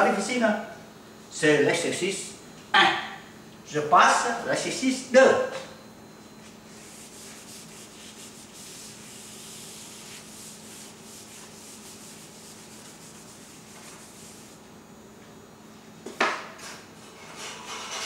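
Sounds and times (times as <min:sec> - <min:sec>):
eraser wiping whiteboard: 0:06.7 - 0:14.6.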